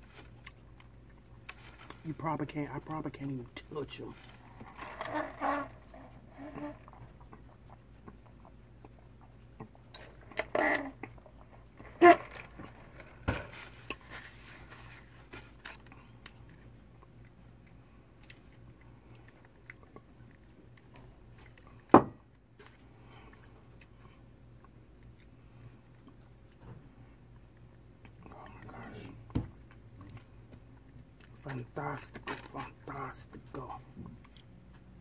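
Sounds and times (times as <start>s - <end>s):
person chewing crispy food: 0.0s - 2.1s, 4.1s - 35.0s.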